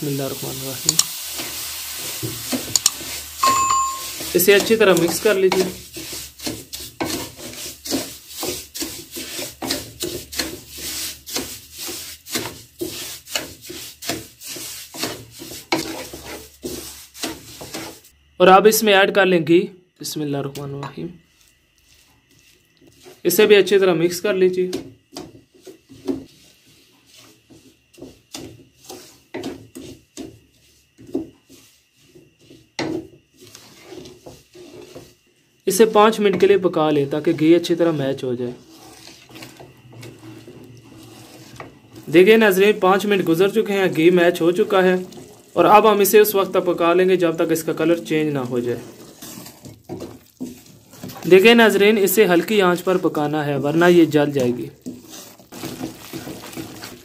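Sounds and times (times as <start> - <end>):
wooden spoon scraping sugar in pan: 0.0 - 18.2, 21.2 - 23.9, 24.5 - 57.0.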